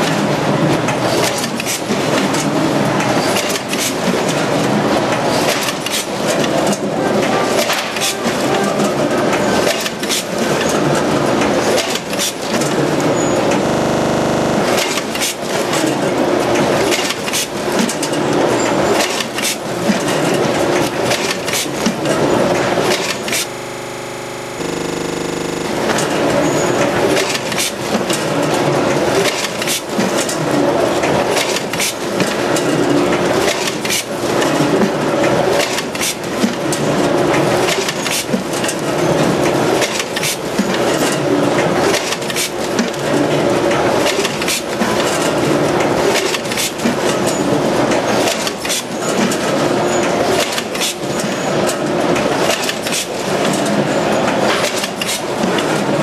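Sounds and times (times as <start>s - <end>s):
bagging machine clattering: 0.0s - 23.5s, 25.6s - 56.0s.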